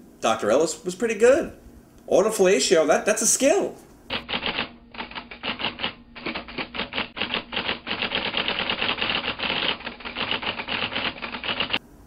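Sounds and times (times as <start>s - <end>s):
rapid sharp mechanical clicks: 4.1s - 11.8s.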